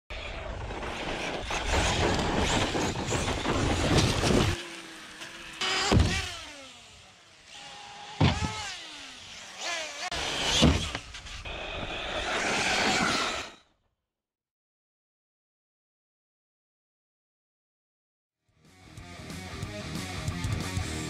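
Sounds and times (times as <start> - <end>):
electric motor whining: 1.2 - 13.5.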